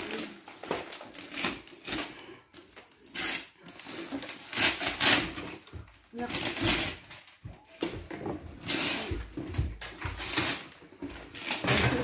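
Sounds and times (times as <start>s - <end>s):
wrapping paper tearing: 0.0s - 5.6s, 6.2s - 7.3s, 8.6s - 9.3s, 10.0s - 12.0s.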